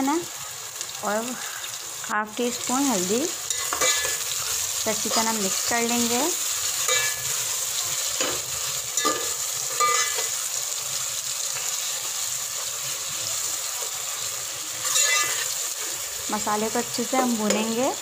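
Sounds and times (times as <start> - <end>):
masala sizzling in oil: 0.0 - 18.0
metal spoon scraping pot: 3.5 - 5.4, 9.0 - 10.4, 14.8 - 15.6.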